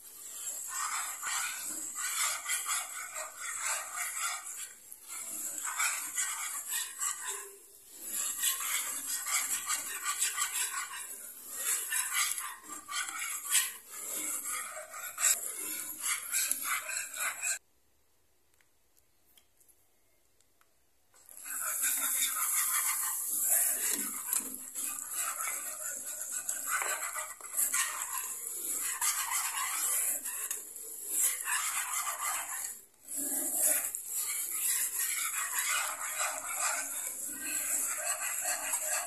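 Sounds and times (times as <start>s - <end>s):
wire whisk scraping a pan: 0.0s - 17.6s, 21.3s - 39.0s.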